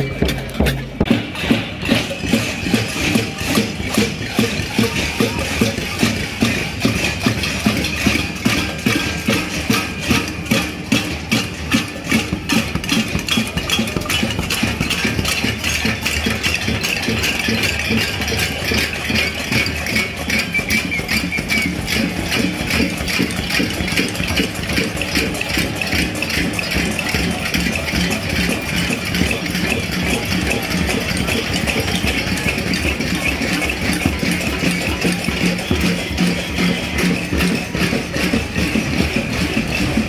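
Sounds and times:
crowd banging pots and pans: 0.0s - 40.0s.

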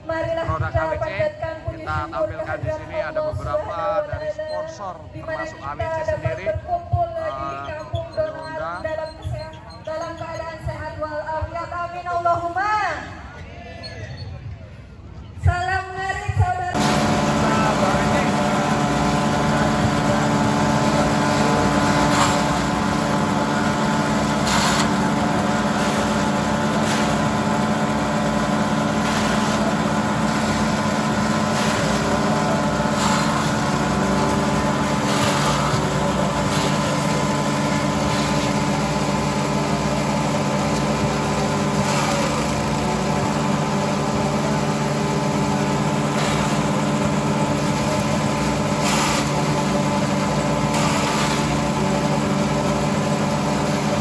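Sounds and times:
forage chopper engines running: 16.7s - 54.0s
stalks crunching in chopper: 16.8s - 54.0s.

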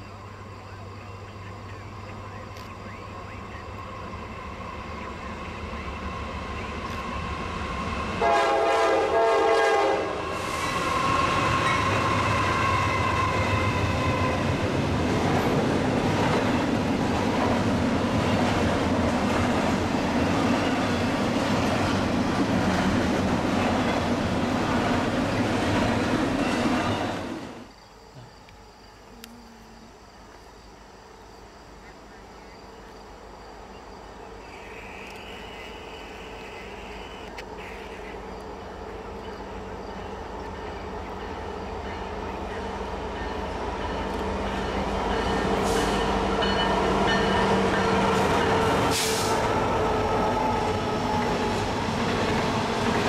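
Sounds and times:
train wheel and rail noise: 0.0s - 53.0s
train horn blast: 8.2s - 14.6s.

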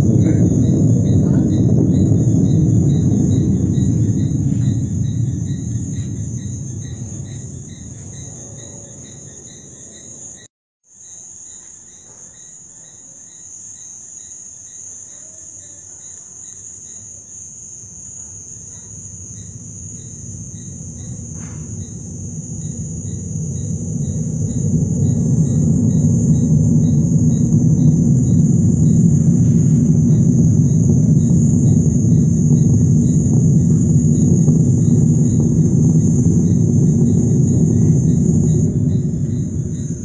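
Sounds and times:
loud low rumble: 0.0s - 10.5s, 18.8s - 40.0s
crickets chirping: 0.0s - 40.0s.

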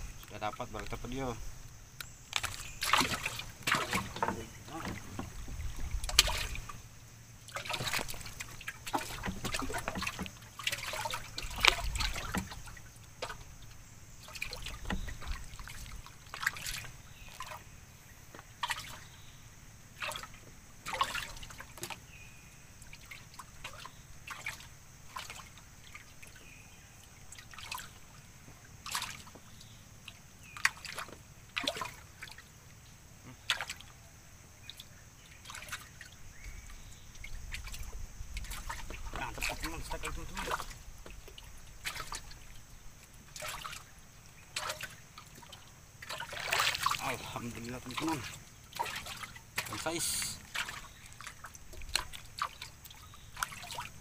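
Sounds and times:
water lapping against a boat: 0.0s - 54.0s
dull low thumps: 3.5s - 6.8s.

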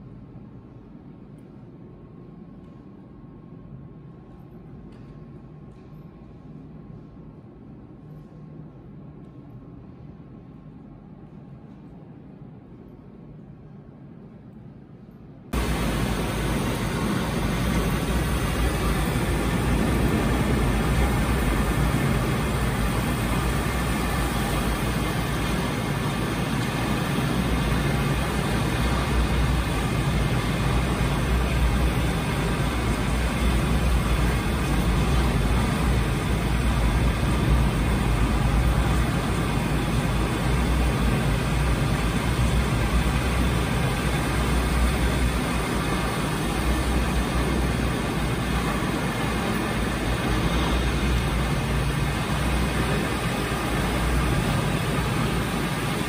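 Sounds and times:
waterfall rushing: 15.6s - 35.6s.

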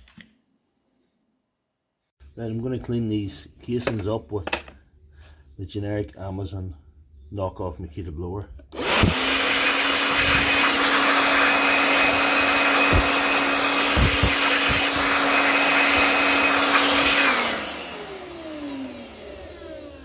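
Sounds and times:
cordless blower whining: 8.7s - 20.0s.

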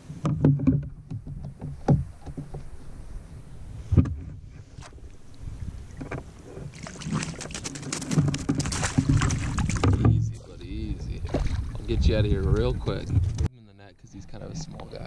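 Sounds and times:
fish thrashing and splashing: 5.9s - 10.1s.

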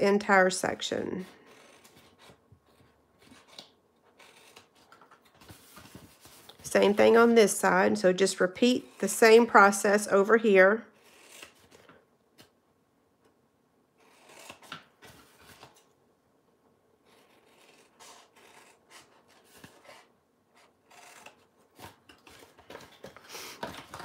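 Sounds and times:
scissors cutting cardstock: 1.4s - 5.2s, 14.0s - 14.9s.

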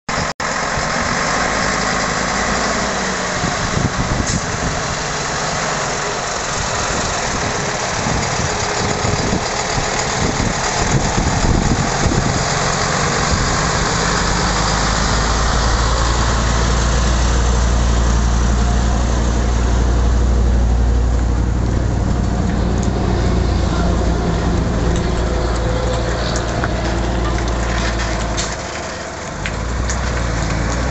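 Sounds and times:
truck diesel engine running: 0.1s - 30.9s.

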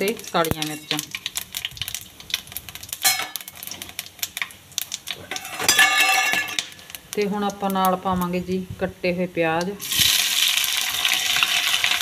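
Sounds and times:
spices clinking into hot oil: 0.0s - 7.9s.

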